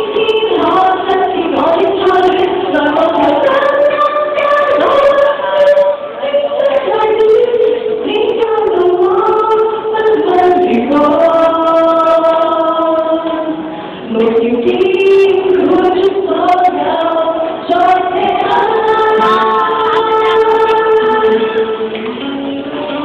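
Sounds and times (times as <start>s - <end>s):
choir singing: 15.1s - 21.9s.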